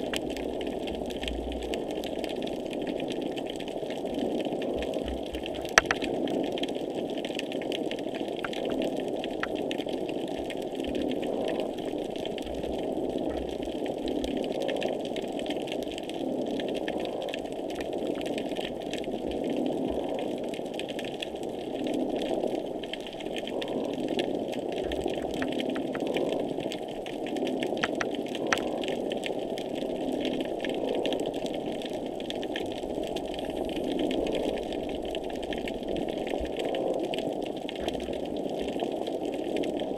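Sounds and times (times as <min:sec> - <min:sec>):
crackling clicks: 0:00.0 - 0:39.9
underwater rushing drone: 0:00.0 - 0:39.9.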